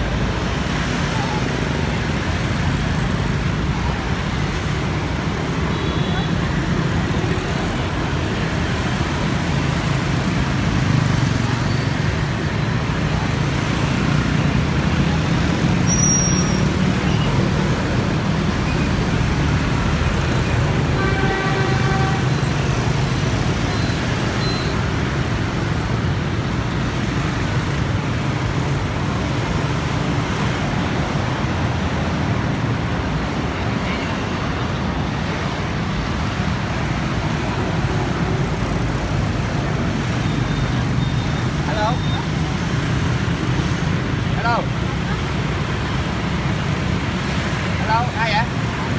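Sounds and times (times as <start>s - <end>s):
traffic engine rumble: 0.0s - 48.9s
short high squeak: 15.9s - 17.3s
vehicle horn: 21.0s - 22.4s.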